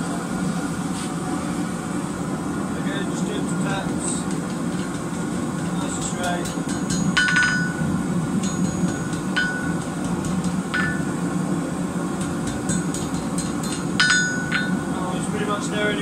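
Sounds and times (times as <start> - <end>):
steady low hum: 0.0 - 16.0
hammer striking metal on anvil: 4.2 - 11.2, 12.2 - 14.9.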